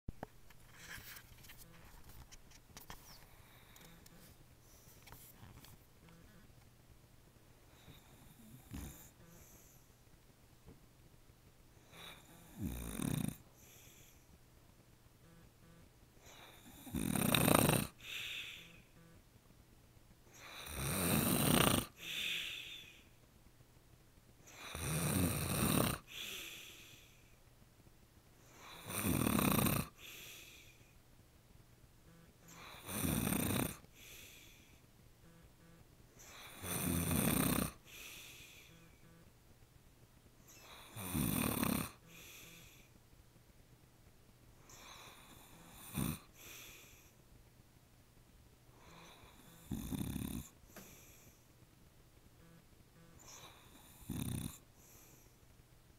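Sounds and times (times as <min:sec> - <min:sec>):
quiet breath: 0:00.5 - 0:06.6, 0:07.5 - 0:10.2, 0:11.7 - 0:14.5, 0:15.3 - 0:17.0, 0:17.8 - 0:19.2, 0:20.3 - 0:20.8, 0:21.8 - 0:23.3, 0:26.0 - 0:27.5, 0:28.4 - 0:29.0, 0:29.8 - 0:31.1, 0:32.1 - 0:39.3, 0:40.4 - 0:41.1, 0:41.7 - 0:43.0, 0:44.5 - 0:47.3, 0:48.7 - 0:51.7, 0:52.4 - 0:55.6
man snoring: 0:07.8 - 0:09.7, 0:11.9 - 0:14.0, 0:16.3 - 0:18.9, 0:20.4 - 0:23.0, 0:24.5 - 0:27.1, 0:28.5 - 0:30.8, 0:32.5 - 0:34.7, 0:36.2 - 0:39.0, 0:40.5 - 0:42.9, 0:44.7 - 0:47.0, 0:48.8 - 0:51.1, 0:53.2 - 0:55.1.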